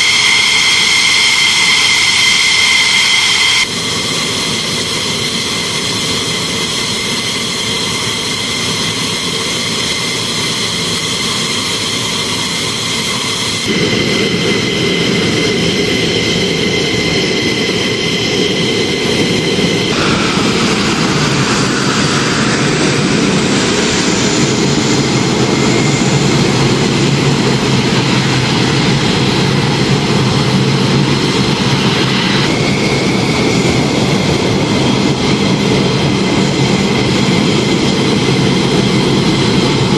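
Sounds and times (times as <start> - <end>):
jet engines roaring with whine: 0.0 - 39.9.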